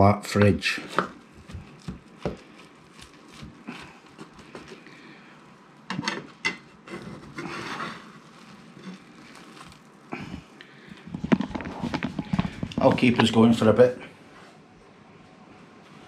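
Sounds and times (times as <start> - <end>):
fork scraping a frying pan: 6.9 - 8.2.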